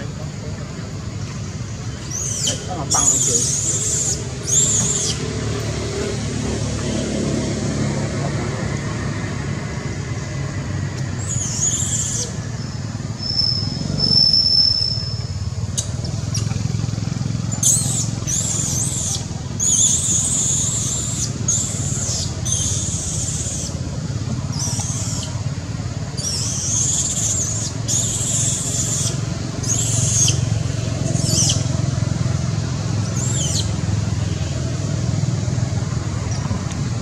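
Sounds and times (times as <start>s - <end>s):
infant monkey squealing: 2.1s - 5.4s, 11.2s - 15.2s, 17.5s - 23.8s, 24.5s - 25.5s, 26.1s - 31.8s, 33.1s - 33.8s.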